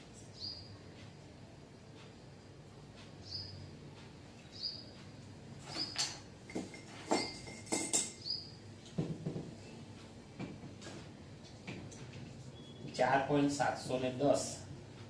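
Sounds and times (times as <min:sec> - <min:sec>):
small bird chirping: 0:00.2 - 0:01.0, 0:03.2 - 0:03.7, 0:04.4 - 0:06.0, 0:08.1 - 0:08.7
marker and duster knocks: 0:09.0 - 0:09.6.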